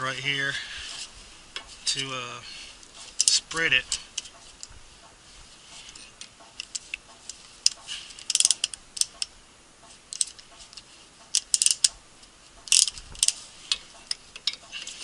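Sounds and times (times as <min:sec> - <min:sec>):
metal tools clicking and clinking: 0:12.7 - 0:15.0.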